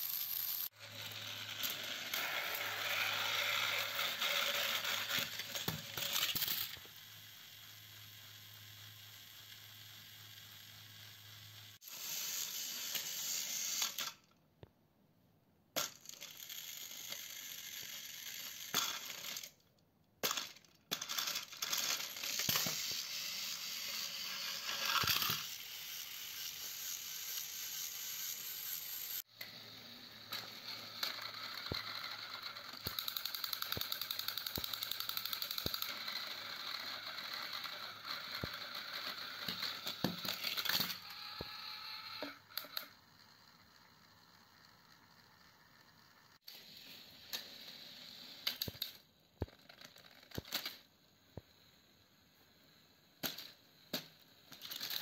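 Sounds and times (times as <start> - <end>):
toy train motors whirring: 0.0 - 14.4, 15.8 - 51.8, 52.5 - 55.0
plastic clicks and clatter: 48.5 - 50.9.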